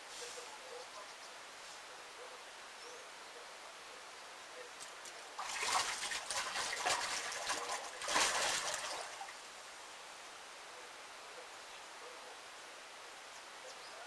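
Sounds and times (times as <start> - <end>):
water splashing and trickling: 4.8 - 9.6.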